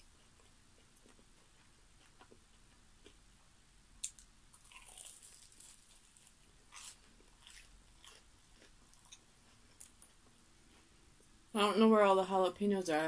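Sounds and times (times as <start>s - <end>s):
crunchy bite and chewing: 4.0s - 10.1s.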